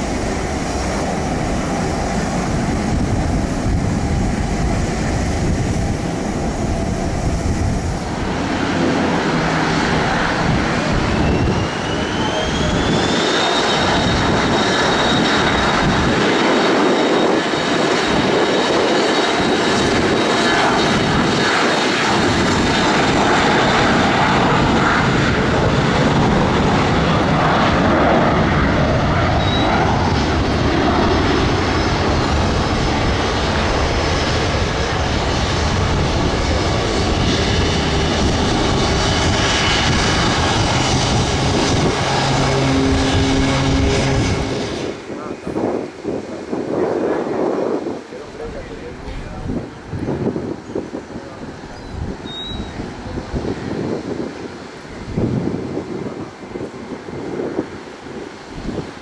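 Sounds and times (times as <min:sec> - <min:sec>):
dense engine rumble: 0:00.0 - 0:46.8
jet turbofan whine: 0:00.0 - 0:59.0.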